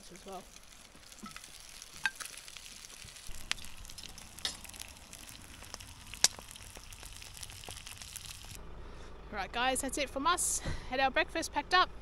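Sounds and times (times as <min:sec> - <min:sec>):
bacon sizzling in a pan: 0:00.0 - 0:08.6
fat popping: 0:00.5 - 0:08.6.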